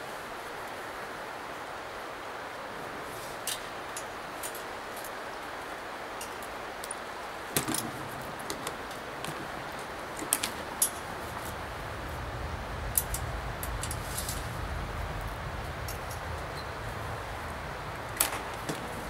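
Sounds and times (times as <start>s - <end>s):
steady low rumble: 10.9s - 19.0s.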